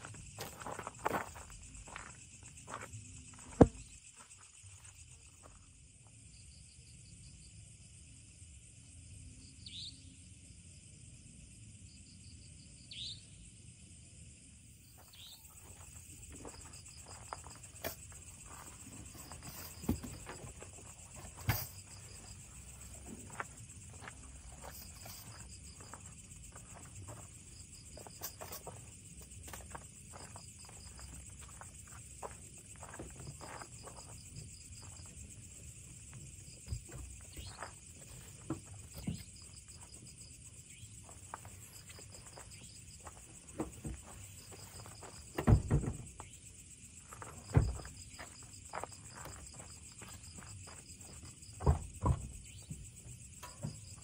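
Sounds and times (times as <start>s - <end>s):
insects chirping: 0.0s - 54.0s
camping gear being handled: 15.0s - 27.3s.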